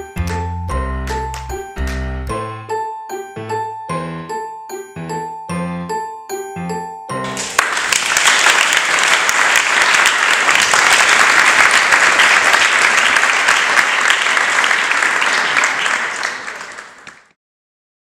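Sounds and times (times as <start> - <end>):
audience applauding: 7.2 - 17.4.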